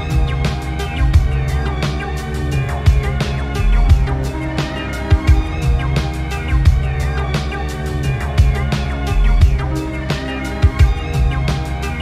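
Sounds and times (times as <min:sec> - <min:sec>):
bass: 0:00.0 - 0:12.0
drum beat: 0:00.0 - 0:12.0
synth chords: 0:00.0 - 0:12.0.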